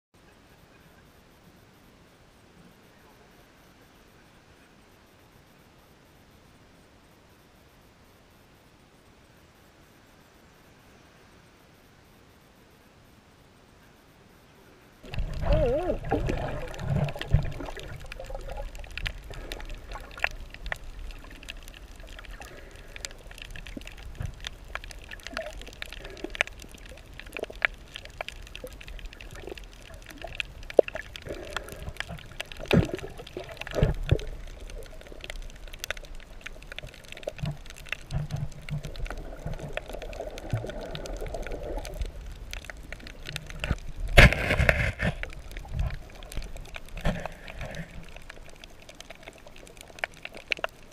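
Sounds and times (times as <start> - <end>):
underwater gurgling and sloshing: 14.5 - 50.9
rush of water: 15.0 - 50.9
underwater clicks and crackles: 15.0 - 50.9.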